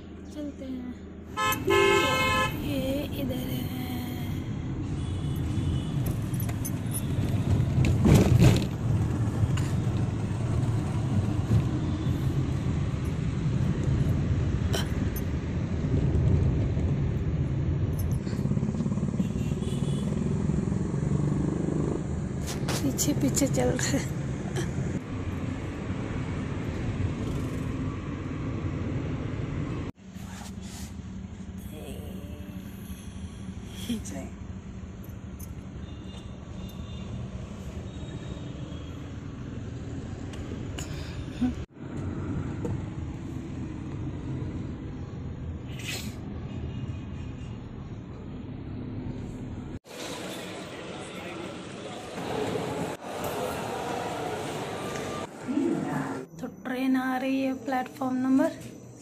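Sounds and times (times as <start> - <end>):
car engine rumble: 0.0 - 36.7
road noise: 0.0 - 59.0.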